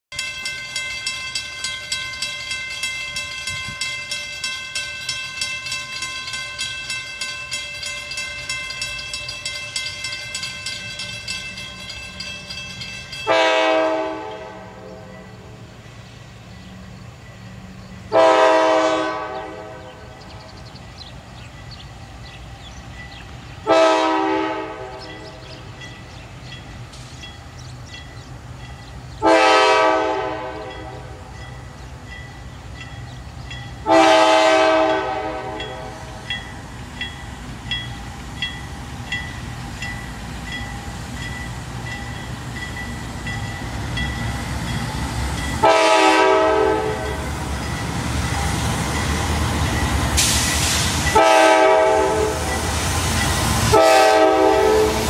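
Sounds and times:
crossing warning bell ringing: 0.1 - 55.0
diesel locomotive rumble: 0.2 - 55.0
locomotive air horn blasts: 13.3 - 15.5, 18.1 - 20.1, 23.6 - 25.5, 29.2 - 31.3, 33.8 - 36.2, 45.6 - 47.2, 50.2 - 52.6, 53.7 - 55.0.

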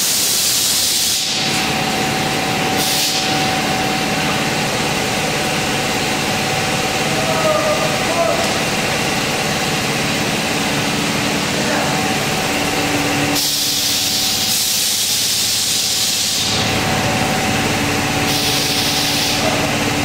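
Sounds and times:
air hissing: 0.0 - 4.7, 10.7 - 16.9, 17.5 - 19.8
low machine hum: 1.2 - 20.0.

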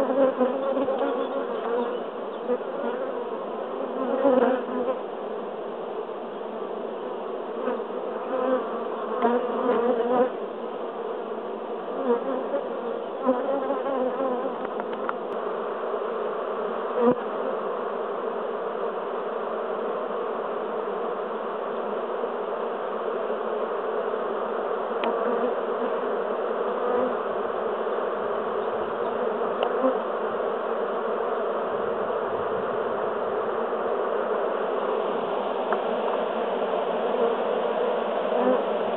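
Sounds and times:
bee flying past: 0.0 - 5.0, 7.6 - 10.4, 11.9 - 15.3, 16.5 - 18.6, 23.9 - 38.9
bees buzzing: 0.0 - 5.4, 6.6 - 38.9.

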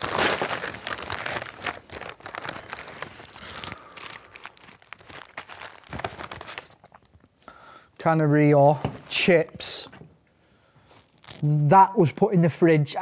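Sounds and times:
paper bag crinkling and rustling: 0.0 - 7.2.

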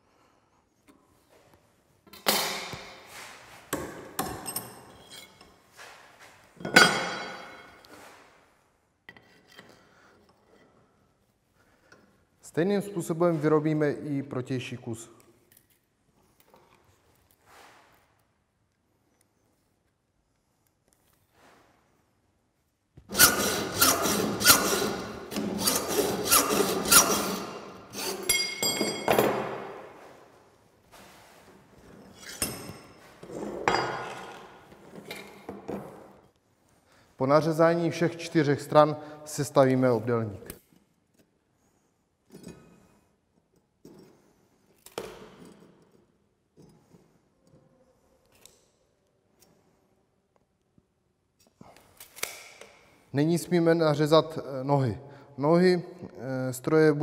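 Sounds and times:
hacksaw cutting steel: 23.1 - 28.6.

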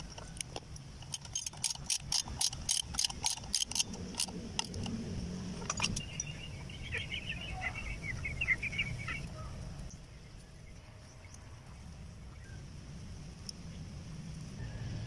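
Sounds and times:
bird chirping: 5.4 - 11.6.

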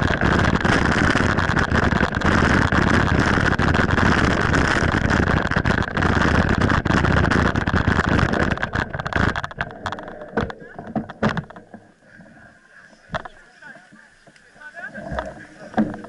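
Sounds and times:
wind rushing over microphone: 0.0 - 10.5
bike knocks and rattles: 0.0 - 11.8, 15.0 - 16.0.

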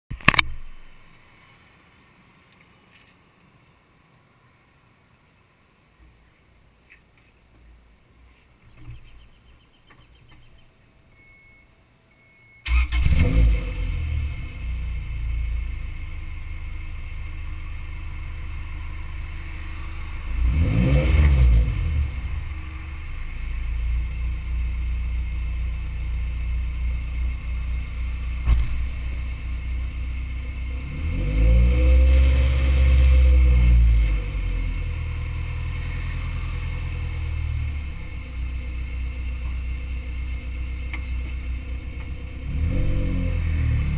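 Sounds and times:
car engine idling and revving: 12.7 - 43.9.

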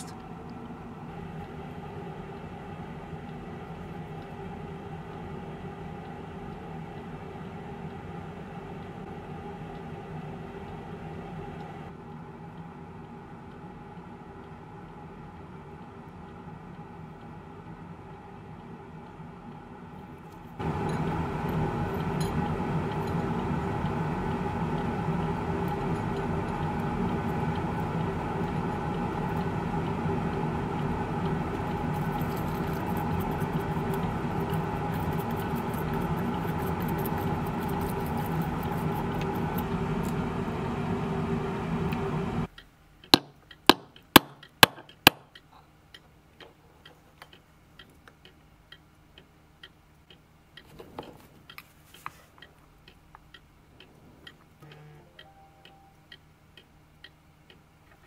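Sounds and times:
light ticks: 0.0 - 10.0, 10.6 - 17.9, 18.6 - 40.2, 41.9 - 58.0
machine hum: 0.0 - 58.0
sharp metallic clicks: 42.5 - 50.7.

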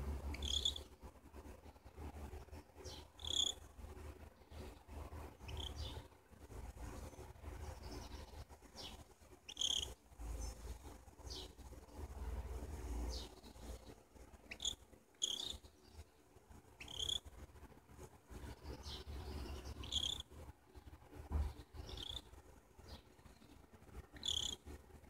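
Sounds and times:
cockatiel chirping: 0.3 - 0.8, 2.9 - 3.6, 5.4 - 5.9, 9.5 - 10.0, 14.5 - 15.6, 16.8 - 17.3, 19.8 - 20.2, 21.9 - 22.3, 24.2 - 24.6.

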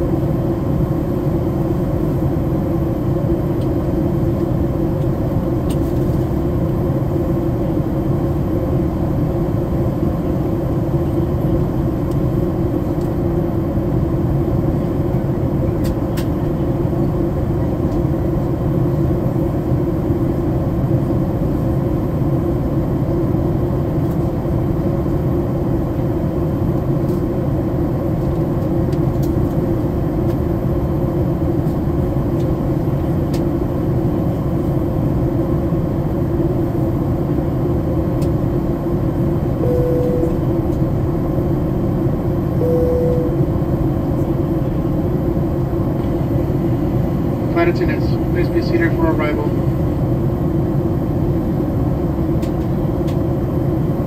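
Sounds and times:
airliner cabin engine rush: 0.0 - 54.0
faint steady hum: 38.2 - 51.8.

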